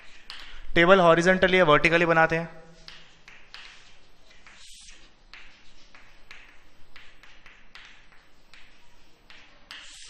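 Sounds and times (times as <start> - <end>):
chalk scratching on chalkboard: 0.0 - 0.4, 2.7 - 10.0.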